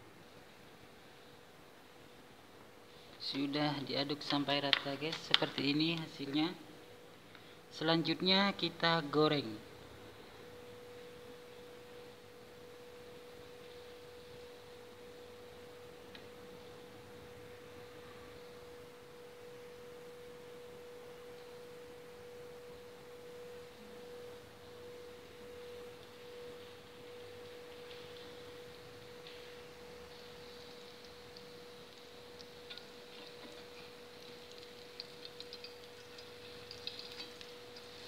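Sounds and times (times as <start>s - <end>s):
steady pure tone: 0.0s - 38.0s
noodles deep-frying in oil: 10.5s - 38.0s.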